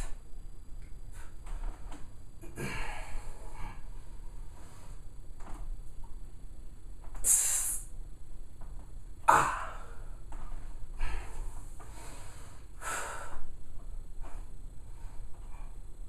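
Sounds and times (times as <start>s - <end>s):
man breathing forcefully: 10.9s - 13.5s.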